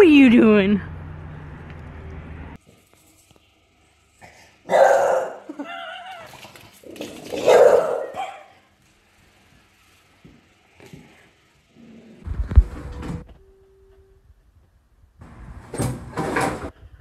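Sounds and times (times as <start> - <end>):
dog barking: 4.7 - 5.5, 7.4 - 8.5.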